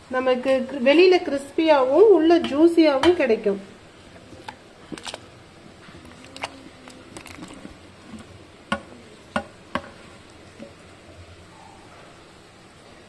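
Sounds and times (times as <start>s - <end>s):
cubes splashing into water: 6.0s - 7.6s.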